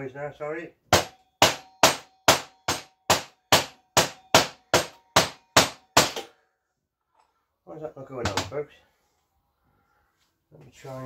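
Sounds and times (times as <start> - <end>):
mallet knocking metal part: 0.9 - 6.3.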